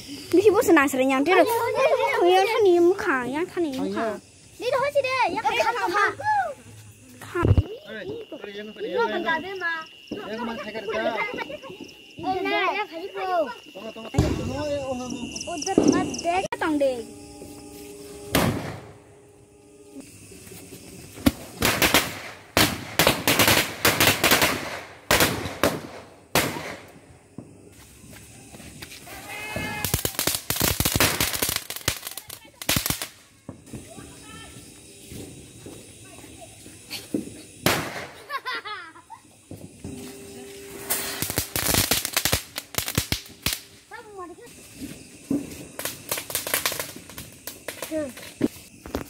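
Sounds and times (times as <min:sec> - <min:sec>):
firecrackers banging: 0:17.4 - 0:19.1, 0:20.2 - 0:27.5, 0:28.7 - 0:34.4, 0:35.1 - 0:38.6, 0:40.6 - 0:49.0.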